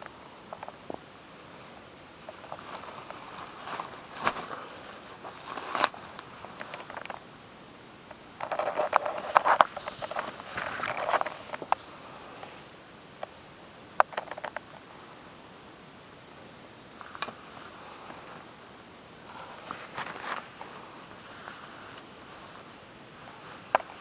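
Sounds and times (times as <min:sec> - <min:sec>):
plastic mesh bag rustling: 0:02.2 - 0:07.1, 0:08.4 - 0:12.4, 0:19.2 - 0:24.0.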